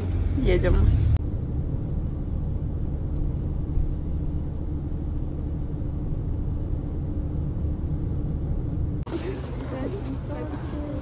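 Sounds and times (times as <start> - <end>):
car road and engine rumble: 0.0 - 11.0.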